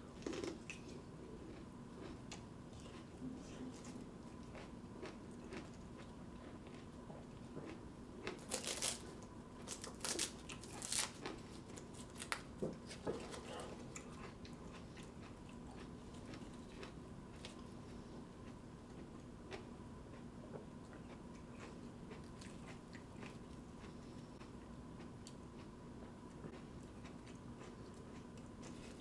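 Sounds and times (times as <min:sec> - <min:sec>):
chewing: 0:00.1 - 0:29.0
papery husk crackling: 0:08.4 - 0:14.0.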